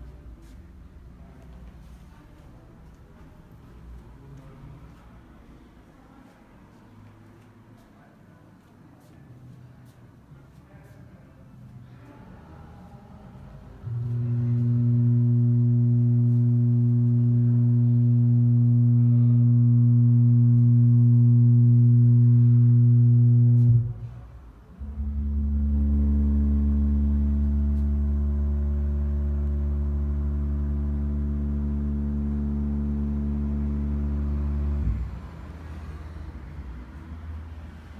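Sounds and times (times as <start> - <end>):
low electronic drone tone: 13.8 - 36.6.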